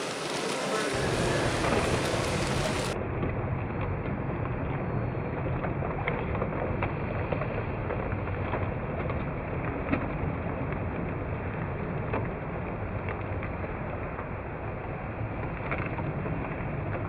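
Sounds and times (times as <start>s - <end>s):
model train motor rumbling: 0.0s - 3.0s.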